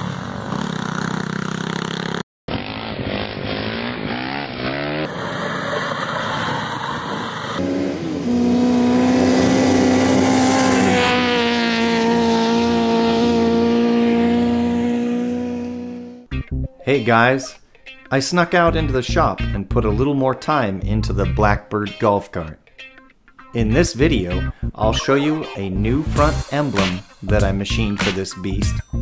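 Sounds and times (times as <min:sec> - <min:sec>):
dune buggy engines revving: 0:00.0 - 0:16.3.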